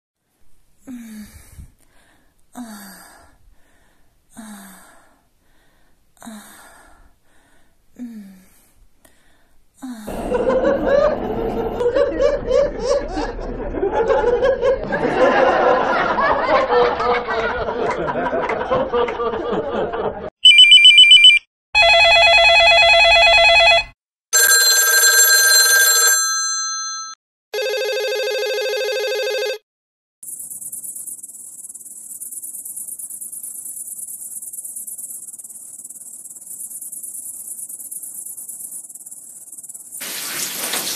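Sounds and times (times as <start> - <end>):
recorded laughter: 10.1 - 20.3
electronic telephone trill: 20.4 - 26.6, 27.6 - 29.6
warbling telephone ring: 20.4 - 29.6.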